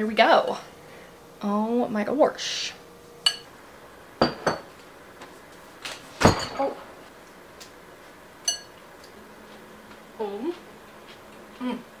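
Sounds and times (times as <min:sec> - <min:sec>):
fork clinking against ceramic bowl: 0:03.2 - 0:03.5, 0:08.5 - 0:08.8.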